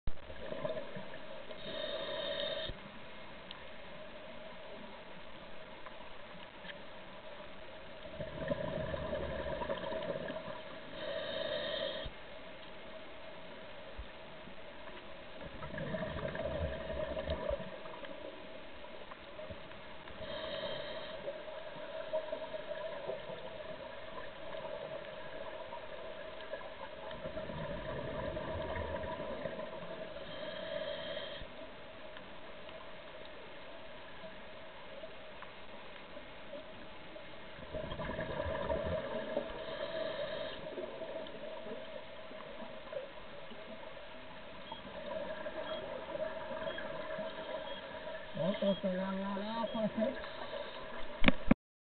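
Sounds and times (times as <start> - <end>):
faint steady hum: 0.1 - 51.6
regulator inhalation hiss: 1.6 - 2.8, 10.9 - 12.1, 20.2 - 21.3, 30.2 - 31.5, 39.6 - 40.7
bubbles from underwater breathing: 15.6 - 17.6, 37.7 - 39.6.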